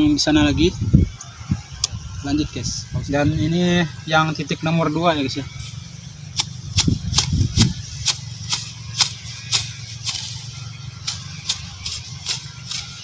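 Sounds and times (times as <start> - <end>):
dry grass rustling and crunching: 0.8 - 13.0
low thumps: 6.3 - 12.0.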